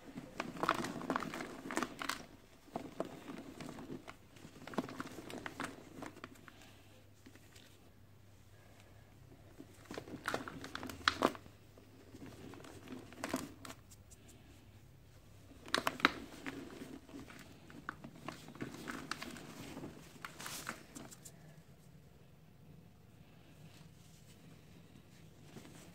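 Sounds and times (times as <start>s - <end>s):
cement ball crunching and cracking: 0.1s - 6.6s, 9.6s - 13.8s, 15.5s - 21.3s.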